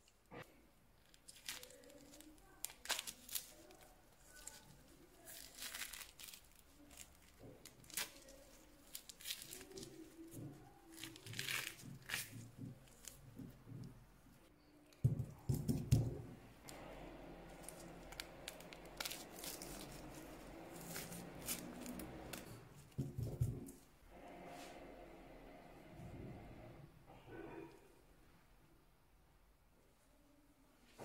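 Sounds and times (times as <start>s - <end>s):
peel tearing and crackling: 1.0s - 13.2s, 17.6s - 23.0s.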